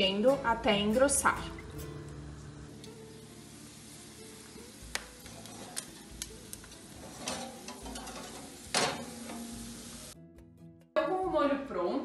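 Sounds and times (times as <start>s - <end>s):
pork sizzling in baking dish: 0.2s - 10.2s
dish knocking on wire rack: 7.2s - 9.1s.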